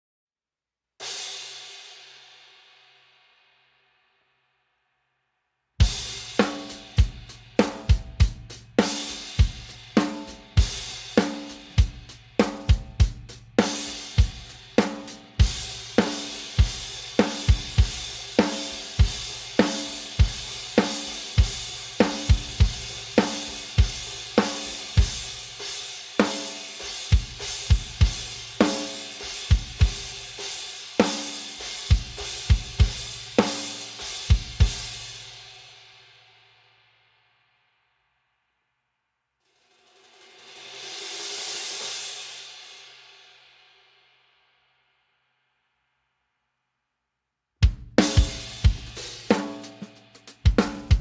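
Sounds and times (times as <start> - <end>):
snare drum: 5.8 - 25.5, 26.2 - 30.3, 31.0 - 34.9, 47.6 - 51.0
kick drum: 47.6 - 48.9.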